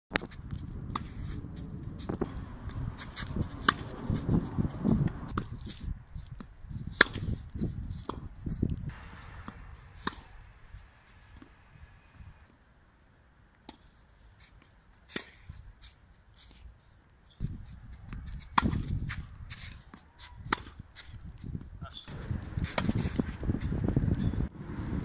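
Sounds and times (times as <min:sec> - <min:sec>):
tennis ball strikes: 0:00.9 - 0:01.2, 0:02.1 - 0:04.3, 0:06.9 - 0:07.3, 0:08.9 - 0:10.4, 0:18.4 - 0:19.7, 0:20.4 - 0:20.8, 0:22.4 - 0:23.4.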